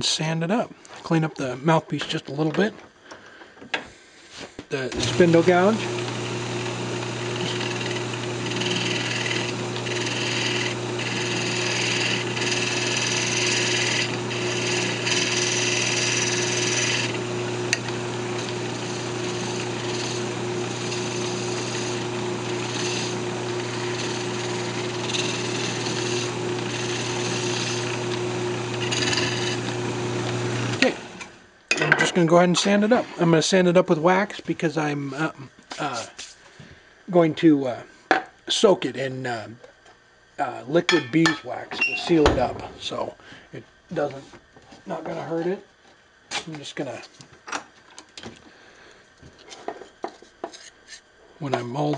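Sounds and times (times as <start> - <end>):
gouge cutting wood hissing: 4.8 - 31.3
wood lathe motor hum: 4.8 - 31.4.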